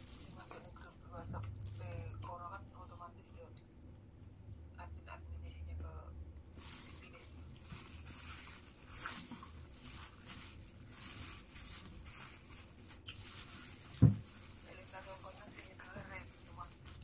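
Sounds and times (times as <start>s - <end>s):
paper wrapping rustling: 0.0s - 2.4s, 6.5s - 17.0s
plastic glove crinkling: 0.0s - 2.9s, 6.5s - 17.0s.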